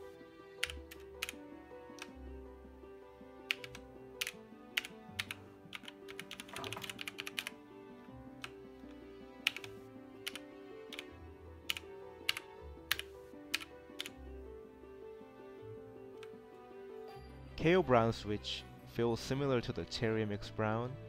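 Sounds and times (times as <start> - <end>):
background music: 0.0 - 21.0
mechanical keyboard clacking: 3.5 - 7.5, 9.4 - 11.1, 11.7 - 14.2.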